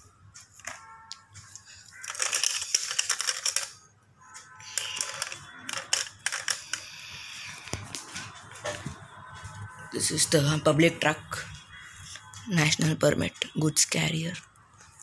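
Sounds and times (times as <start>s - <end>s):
plastic toy truck rattling: 1.8s - 3.8s, 4.7s - 7.1s.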